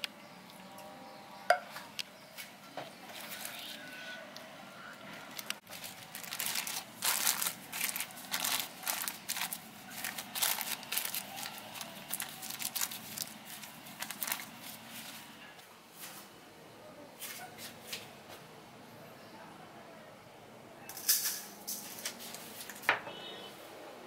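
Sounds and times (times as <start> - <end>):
cling film crinkling: 5.2 - 15.3.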